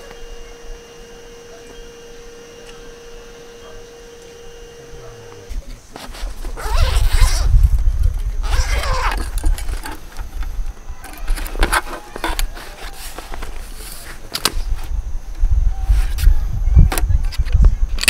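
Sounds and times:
faint steady hum: 0.0s - 18.0s
handling rumble on microphone: 4.5s - 11.0s
zipper pulled open: 6.0s - 7.6s, 8.4s - 9.4s.

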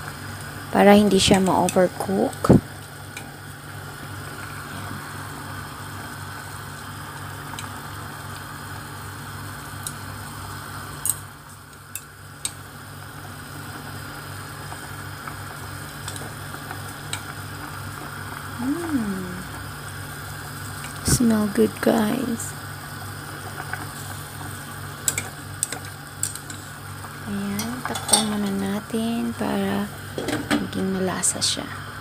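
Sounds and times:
broth bubbling in a pot: 0.0s - 32.0s.

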